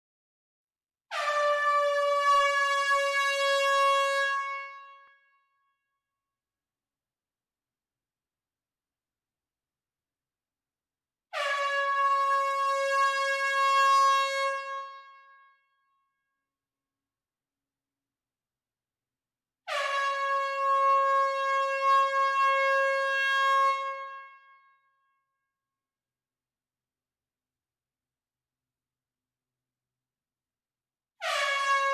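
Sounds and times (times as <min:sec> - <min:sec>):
air horn blast: 0:31.2 - 0:31.9.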